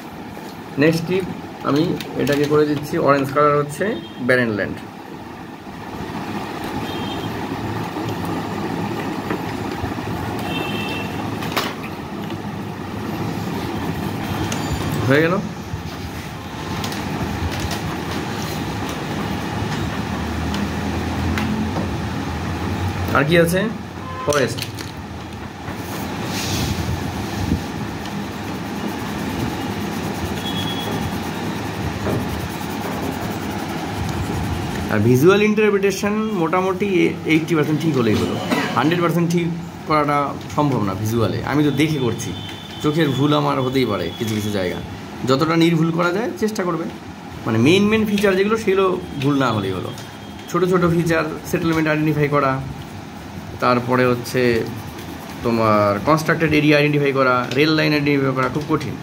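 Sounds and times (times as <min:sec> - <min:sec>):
pencil scratching on paper: 0:28.1 - 0:35.0, 0:53.6 - 0:56.6.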